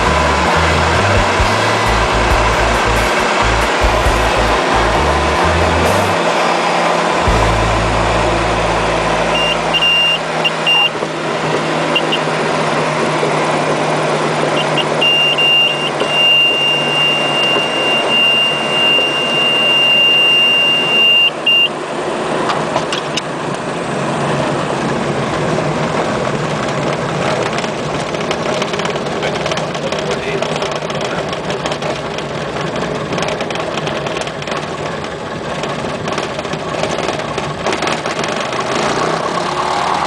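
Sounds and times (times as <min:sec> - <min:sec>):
propeller aircraft engine: 0:00.0 - 0:40.0
high tone chirps: 0:07.2 - 0:11.0, 0:14.6 - 0:21.7.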